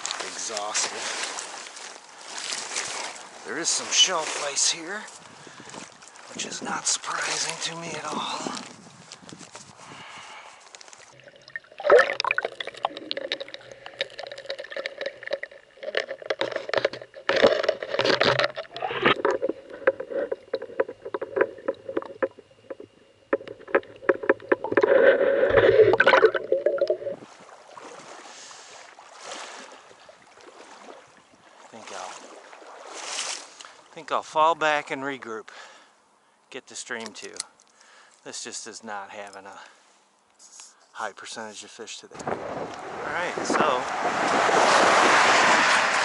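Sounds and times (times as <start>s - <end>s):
underwater gurgling and sloshing: 10.8s - 33.9s.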